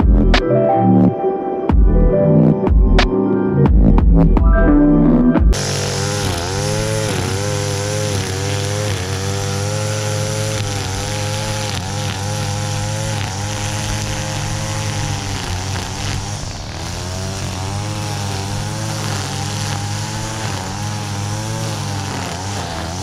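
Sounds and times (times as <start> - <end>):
string trimmer running: 5.5 - 23.0.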